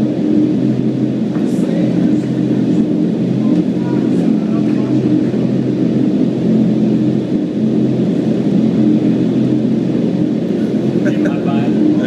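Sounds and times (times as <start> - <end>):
low hum: 0.0 - 12.0
wind tunnel air rushing: 0.0 - 12.0.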